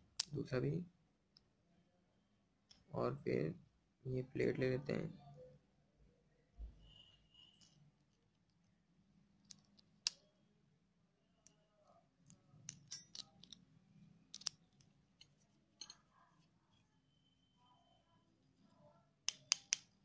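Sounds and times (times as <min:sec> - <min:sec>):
small metallic clicks and taps: 0:09.4 - 0:10.3, 0:12.2 - 0:13.7, 0:14.3 - 0:16.1, 0:19.2 - 0:20.0.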